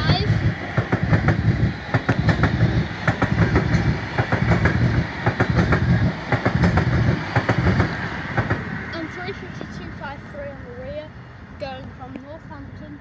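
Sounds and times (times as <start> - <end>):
wheels clacking over rail joints: 0.0 - 10.1
train wheels rumbling on rails: 0.0 - 13.0.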